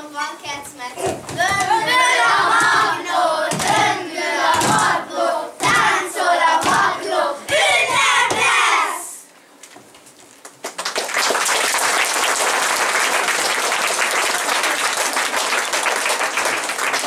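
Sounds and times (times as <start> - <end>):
children chanting in unison: 1.0 - 9.2.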